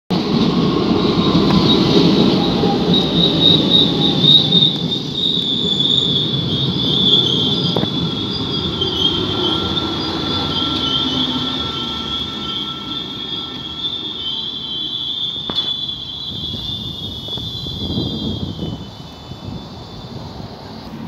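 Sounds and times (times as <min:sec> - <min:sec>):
train wheels rumbling on track: 0:00.1 - 0:21.0
train wheels squealing: 0:00.2 - 0:21.0.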